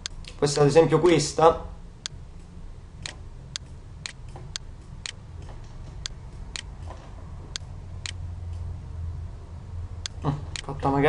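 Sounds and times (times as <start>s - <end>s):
steady low hum: 0.0s - 11.0s
computer mouse clicking: 2.0s - 8.7s.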